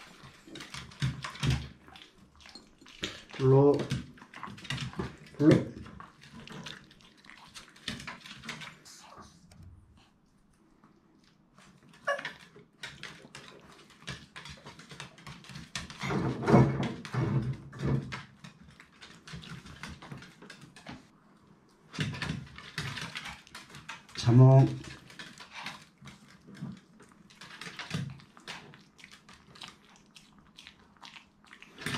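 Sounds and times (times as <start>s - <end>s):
dog noises: 11.2s - 16.4s, 24.8s - 31.9s
dog whining: 12.0s - 12.5s
dog claws clicking on wood: 12.0s - 16.3s, 21.9s - 31.9s.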